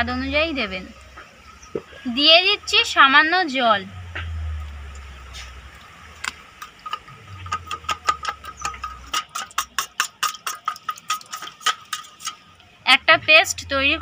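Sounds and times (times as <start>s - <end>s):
metal spoon clinking in steel bowl: 6.8s - 12.4s.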